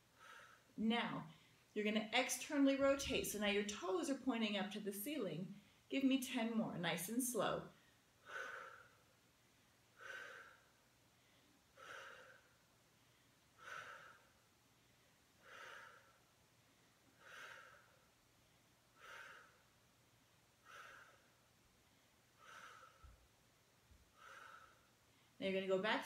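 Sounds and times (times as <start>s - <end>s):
woman breathing out: 0.1s - 0.7s, 7.8s - 9.0s, 10.0s - 12.6s, 13.6s - 14.4s, 15.4s - 16.2s, 17.2s - 18.1s, 19.0s - 19.7s, 20.6s - 21.4s, 22.4s - 23.2s, 24.1s - 25.4s.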